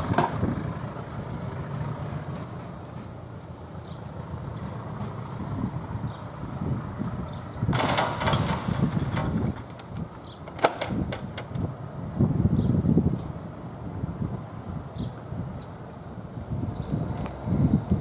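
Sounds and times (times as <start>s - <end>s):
wind rumbling on microphone: 0.0s - 18.0s
wooden gate clicks: 7.7s - 11.6s.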